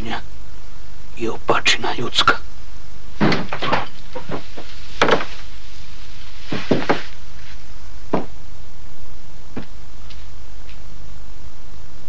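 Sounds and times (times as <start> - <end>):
steady low hum: 0.0 - 12.0
heavy door clanks and knocks: 3.2 - 5.3.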